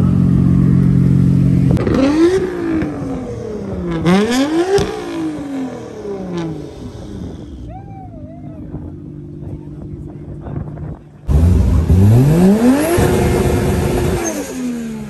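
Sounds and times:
car engine revving: 0.0 - 7.7, 11.2 - 15.0.

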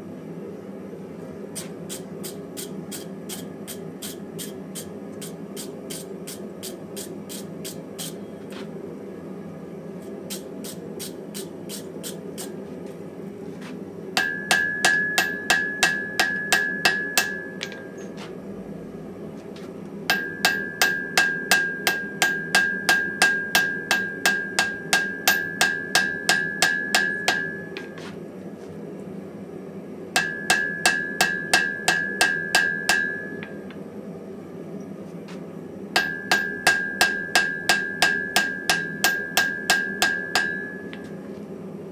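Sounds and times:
steady low hum: 0.0 - 41.9
anvil ringing: 14.2 - 18.0, 20.1 - 27.9, 30.2 - 33.6, 36.0 - 41.0
hammer striking on anvil: 14.2 - 18.0, 20.1 - 28.1, 30.2 - 33.6, 36.0 - 41.2.

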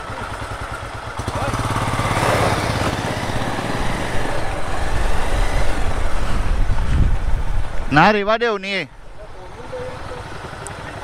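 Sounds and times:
motorcycle engine running: 0.0 - 7.9, 8.9 - 11.0
rushing noise: 1.5 - 9.4.

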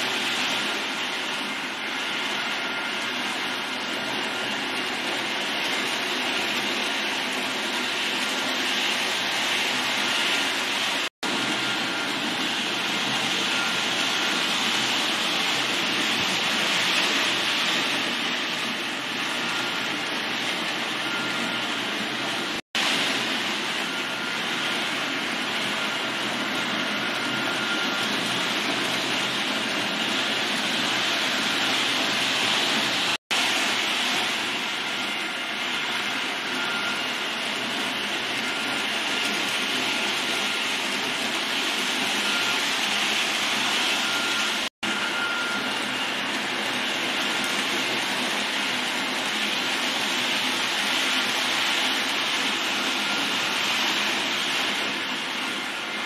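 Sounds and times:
model train rolling on track: 0.0 - 56.0.

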